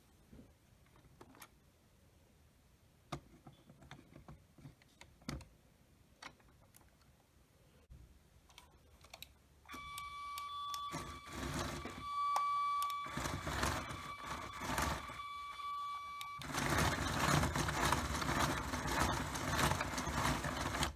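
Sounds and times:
toy train motor whining: 9.7 - 20.9
whirring gear drive: 9.7 - 20.9.

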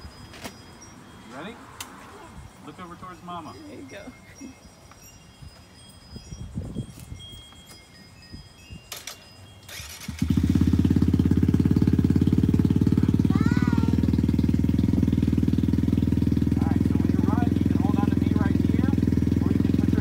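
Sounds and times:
faint wind chimes tinkling: 0.0 - 20.0
motorcycle engine starting and idling: 8.9 - 20.0.

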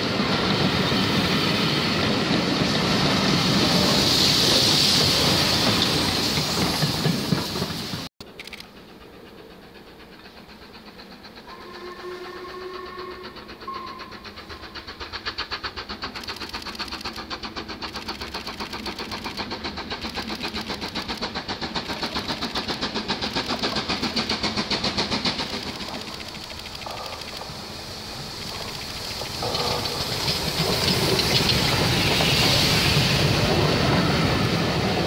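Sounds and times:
steam locomotive exhaust beats: 0.0 - 35.0
steam locomotive whistle: 11.4 - 15.0.

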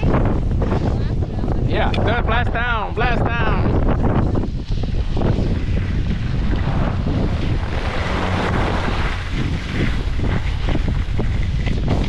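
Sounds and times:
wind buffeting microphone: 0.0 - 12.0
skis sliding on packed snow: 4.5 - 12.0.

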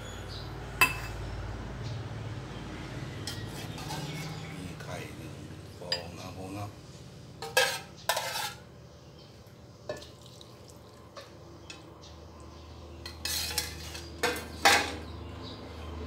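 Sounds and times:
pan clanking on stove: 13.1 - 15.1.

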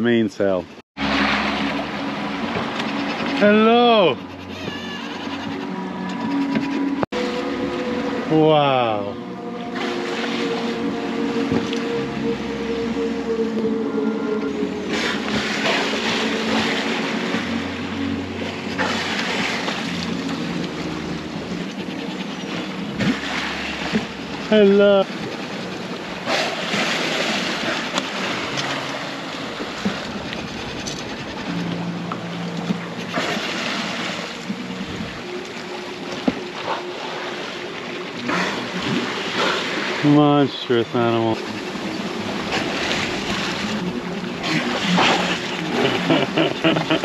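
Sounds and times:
rushing water: 0.0 - 47.0
music with held tones: 5.1 - 26.2, 31.5 - 39.4
wind on microphone: 25.1 - 35.3.

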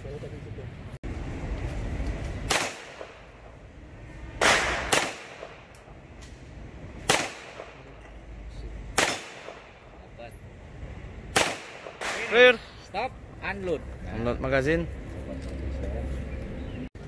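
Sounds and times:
pistol shots with echo: 2.5 - 3.3, 4.4 - 5.7, 7.0 - 7.9, 8.9 - 9.8, 11.3 - 12.5.

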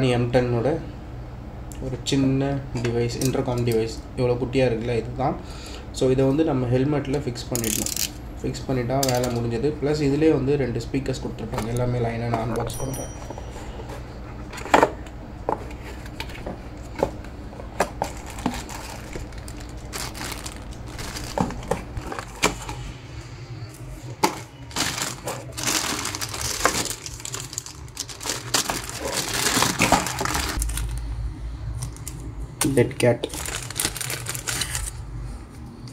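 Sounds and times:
plastic bag crinkling: 18.0 - 22.8, 24.3 - 31.1, 33.2 - 35.1.

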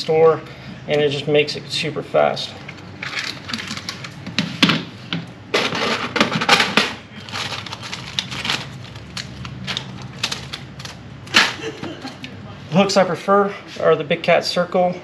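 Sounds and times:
plastic packaging clicks and rustles: 2.7 - 4.4, 5.6 - 11.6
plastic packet crinkling: 7.2 - 11.1.

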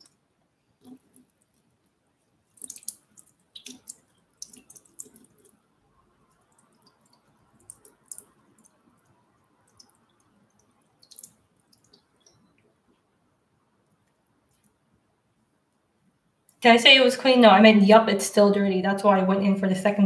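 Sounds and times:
water drips and splashes: 2.5 - 5.6, 6.3 - 12.6.

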